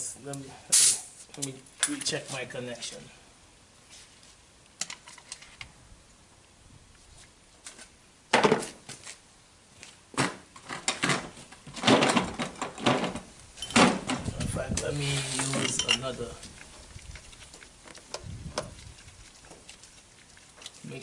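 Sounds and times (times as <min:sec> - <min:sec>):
metal tools clinking and clattering: 0:13.6 - 0:13.9, 0:15.4 - 0:16.1.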